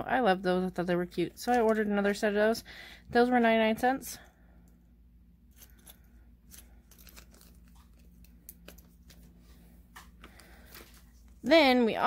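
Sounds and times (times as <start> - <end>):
plastic bags crinkling: 5.6 - 9.4.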